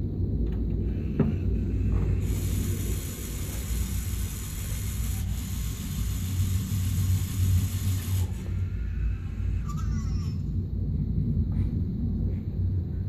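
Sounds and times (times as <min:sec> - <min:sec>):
servo motor running: 0:00.9 - 0:09.8.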